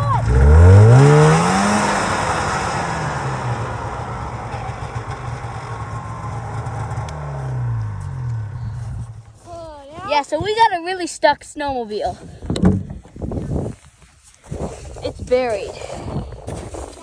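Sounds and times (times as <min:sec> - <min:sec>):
snowmobile engine revving: 0:00.0 - 0:09.2.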